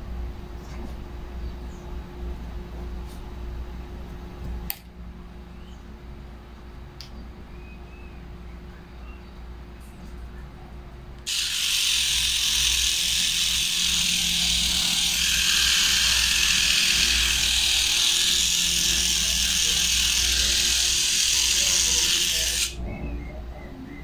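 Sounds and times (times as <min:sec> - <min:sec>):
electric pet trimmer hissing: 0:11.2 - 0:22.8.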